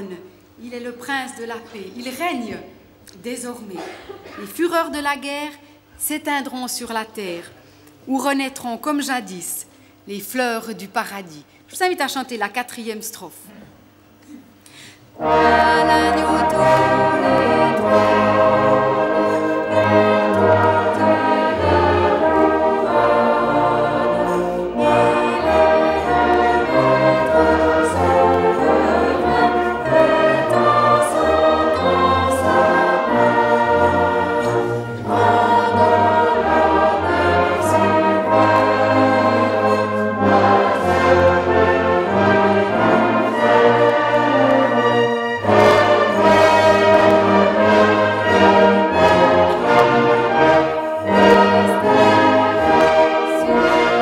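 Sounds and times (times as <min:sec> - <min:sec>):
brass band playing: 0:15.2 - 0:54.0
congregation singing a hymn: 0:15.2 - 0:54.0.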